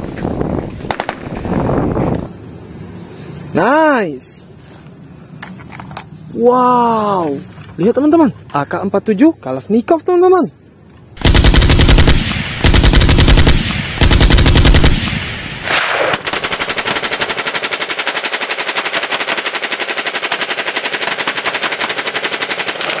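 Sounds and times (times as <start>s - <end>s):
automatic rifle fire: 0.9s - 1.4s, 11.2s - 23.0s.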